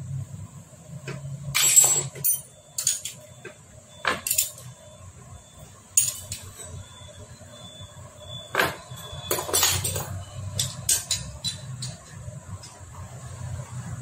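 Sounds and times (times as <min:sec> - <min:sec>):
metal tools clinking on engine: 0:01.5 - 0:03.3, 0:04.0 - 0:04.7, 0:06.0 - 0:06.8, 0:08.5 - 0:12.8.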